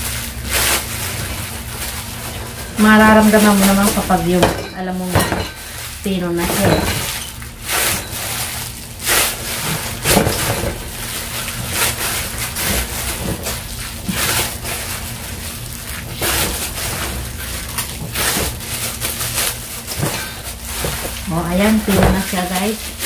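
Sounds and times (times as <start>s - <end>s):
hands kneading dough: 0.0s - 23.0s
plastic gloves crinkling: 0.0s - 23.0s
metal bowl shifting: 2.2s - 8.6s.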